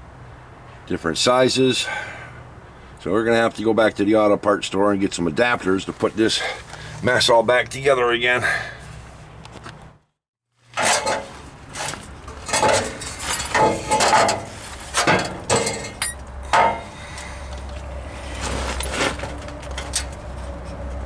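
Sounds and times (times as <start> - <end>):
metal exhaust pipe knocking and clanking: 12.3 - 17.0.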